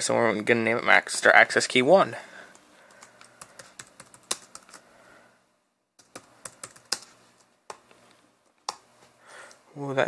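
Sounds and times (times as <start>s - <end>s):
laptop keyboard typing: 2.8s - 4.9s, 6.0s - 7.8s.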